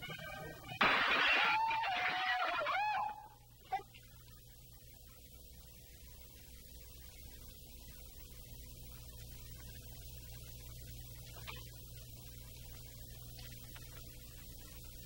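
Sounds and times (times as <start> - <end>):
faint background music: 0.0 - 3.9
low mains hum: 0.0 - 15.0.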